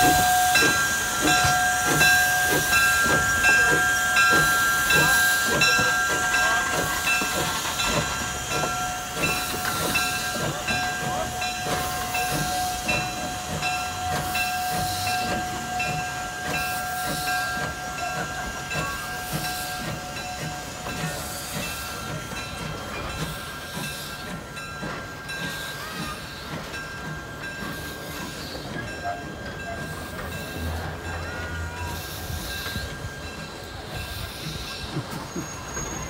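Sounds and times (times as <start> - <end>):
steam hissing: 0.0 - 36.0.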